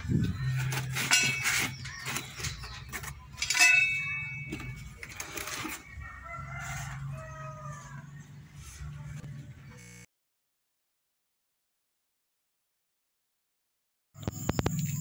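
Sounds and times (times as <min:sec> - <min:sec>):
rooster crowing: 0:05.8 - 0:08.3.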